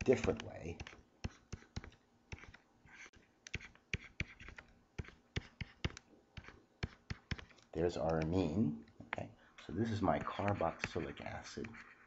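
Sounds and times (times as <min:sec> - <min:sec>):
stylus tapping on screen: 0:00.0 - 0:02.6, 0:03.5 - 0:09.2
stylus scratching on screen: 0:00.0 - 0:08.6, 0:09.5 - 0:12.0.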